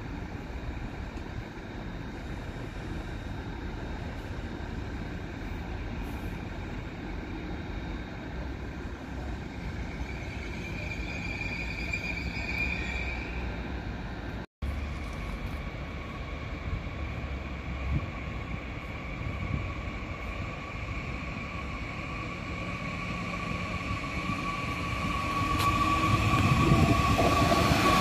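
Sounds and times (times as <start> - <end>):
train rumbling: 0.0 - 28.0
wheels and brakes squealing: 9.4 - 13.8, 21.0 - 28.0.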